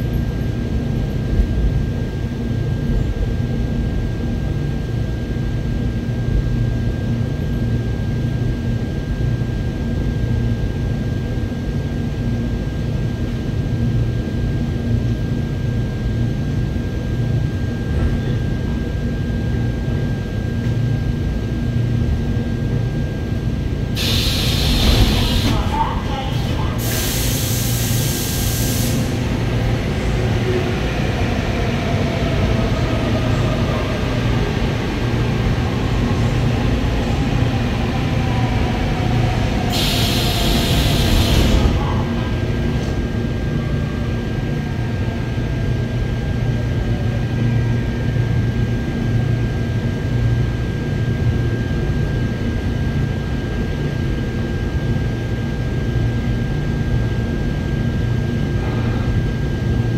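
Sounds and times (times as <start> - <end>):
train rumble: 0.0 - 59.9
loud air hiss: 24.0 - 25.6, 26.7 - 29.3, 39.7 - 41.6.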